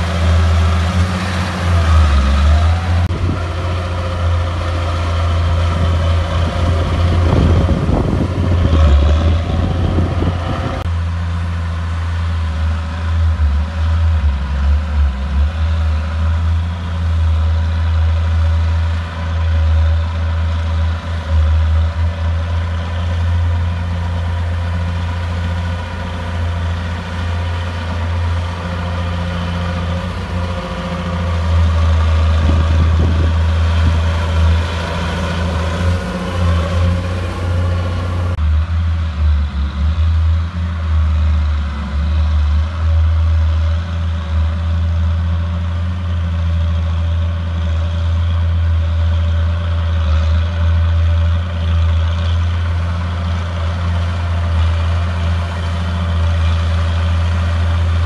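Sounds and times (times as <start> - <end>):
bulldozer diesel engine under load: 0.0 - 58.0.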